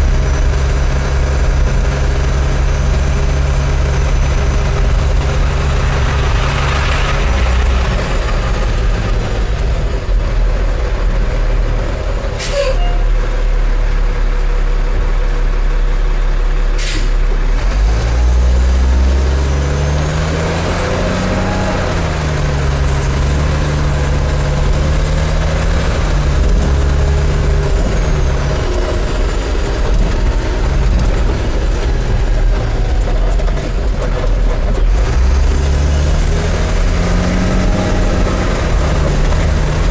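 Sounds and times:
diesel truck engine: 0.0s - 39.9s.

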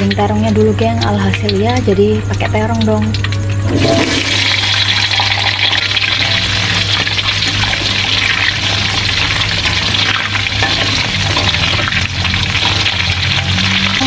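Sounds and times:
eggplants sizzling in oil: 0.0s - 14.0s
metal spatula stirring: 6.2s - 14.0s.

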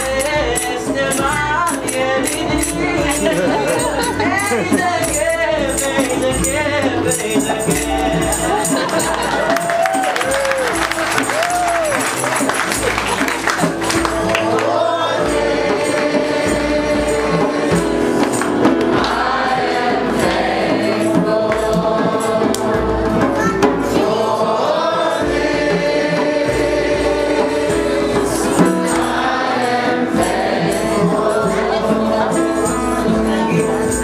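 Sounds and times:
man's voice leading song: 0.0s - 9.5s
tambourine jingling: 0.0s - 23.4s, 25.1s - 34.0s
group singing: 0.0s - 34.0s.

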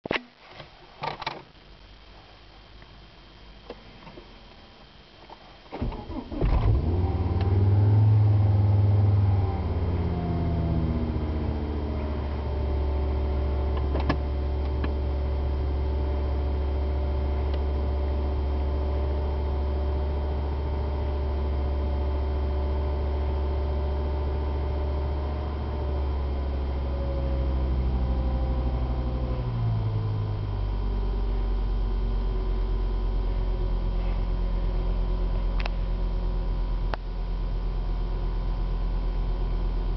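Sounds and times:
car engine cranking: 5.7s - 11.8s
car engine idling: 5.9s - 39.9s.

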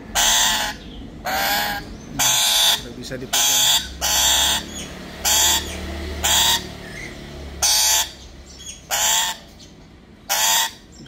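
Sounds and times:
parrot squawking: 0.0s - 11.0s.

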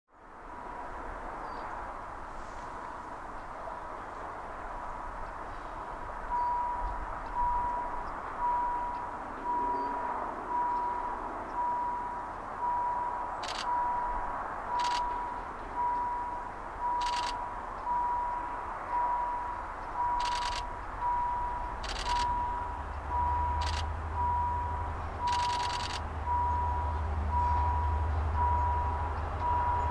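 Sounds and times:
sharp clicks: 13.4s - 13.8s, 14.8s - 15.3s, 17.0s - 17.4s, 19.8s - 20.7s, 21.6s - 22.5s, 23.6s - 23.9s, 25.3s - 26.1s.

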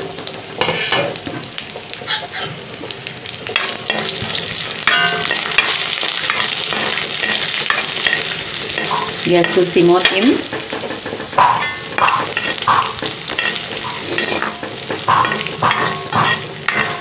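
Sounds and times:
nuts sizzling in ghee: 0.0s - 17.0s
spatula scraping pan: 3.6s - 17.0s.

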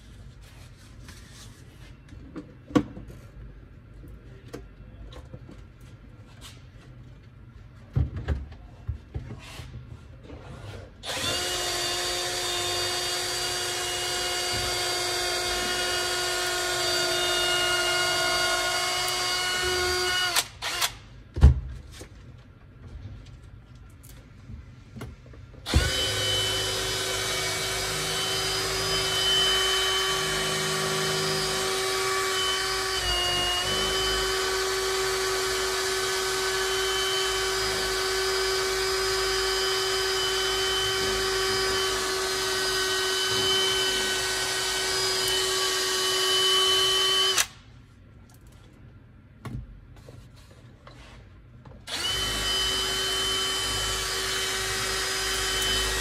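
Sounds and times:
power tool motor whining: 25.7s - 47.5s, 51.9s - 56.0s.

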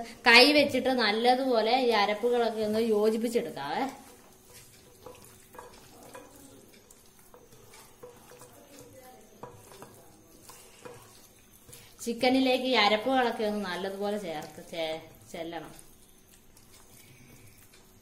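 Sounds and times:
hand squelching wet paste: 14.2s - 18.0s.

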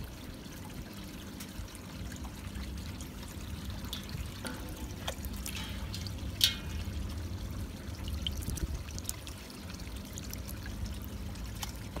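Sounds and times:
steady low hum: 0.0s - 12.0s
water splashing in a basin: 0.0s - 12.0s.

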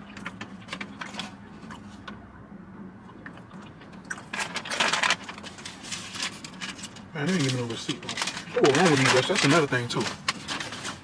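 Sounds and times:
paper bag and wrappers crinkling: 4.2s - 11.0s.

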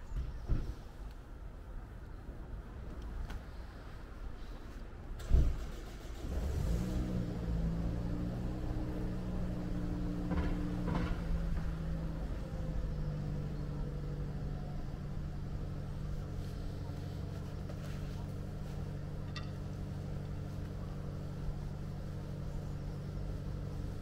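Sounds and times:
car engine starting and running: 5.2s - 24.0s.

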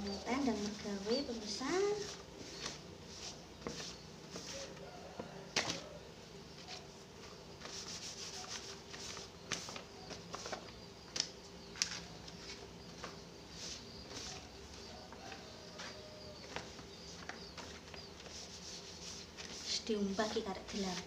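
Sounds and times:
cloth rubbing on leaf: 0.0s - 5.9s, 6.6s - 10.8s, 11.8s - 21.0s
leaf clicking: 9.0s - 13.2s.

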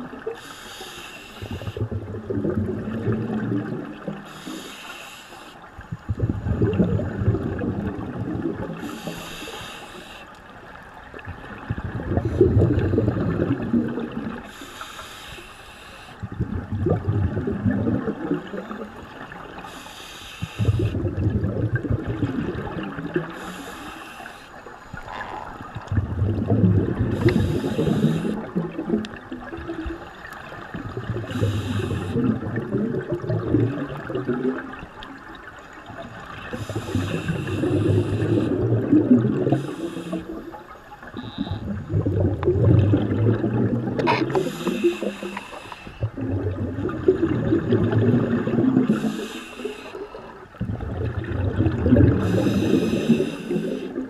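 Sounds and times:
exhaled air bubbling: 0.0s - 54.0s
diver breathing through regulator: 0.3s - 2.0s, 4.2s - 5.6s, 8.8s - 10.4s, 14.4s - 16.3s, 19.6s - 21.0s, 23.2s - 25.3s, 27.0s - 28.5s, 31.1s - 32.5s, 36.4s - 40.6s, 44.0s - 46.1s, 48.6s - 50.4s, 52.0s - 54.0s.

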